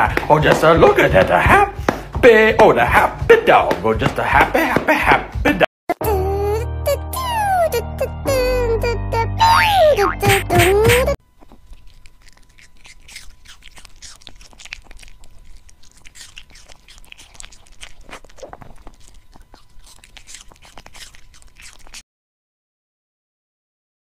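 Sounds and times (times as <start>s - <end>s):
dog crunching and chewing food: 11.2s - 22.0s.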